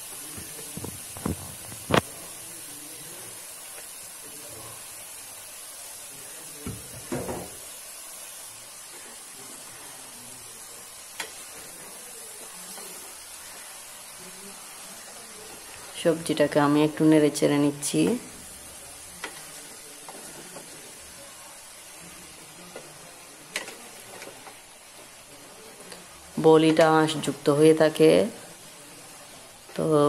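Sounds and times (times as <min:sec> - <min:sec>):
faint steady hiss: 0:00.0 - 0:30.0
wooden spatula stirring: 0:17.9 - 0:21.4, 0:22.0 - 0:26.9.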